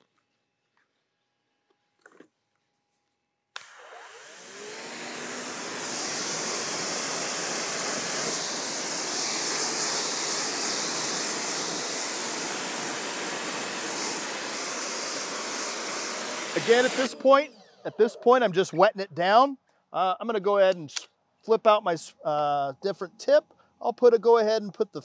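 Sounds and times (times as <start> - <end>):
pressure washer spraying: 3.6 - 17.1.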